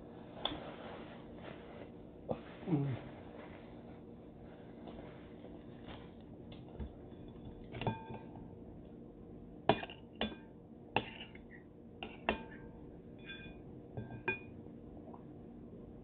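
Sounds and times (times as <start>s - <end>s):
glass bowl clinking: 7.0s - 8.5s, 9.7s - 14.6s.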